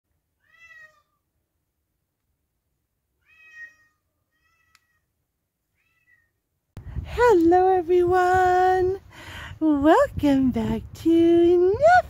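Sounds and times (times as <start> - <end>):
cat meowing: 0.4 - 1.2, 3.2 - 5.1, 5.7 - 6.4
faint click: 4.7 - 4.9.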